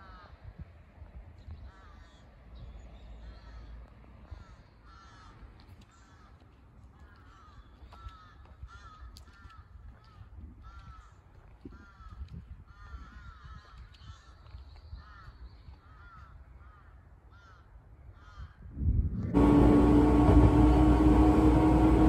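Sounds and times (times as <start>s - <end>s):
crows cawing: 15.9s - 18.5s
steady low rumble: 19.2s - 22.0s.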